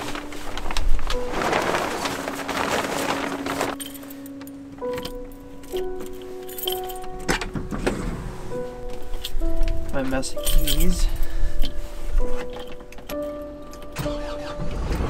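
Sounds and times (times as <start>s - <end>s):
plastic tarp crinkling: 0.0s - 4.6s
background music: 0.0s - 15.0s
keys jingling: 3.7s - 7.4s, 9.0s - 11.8s.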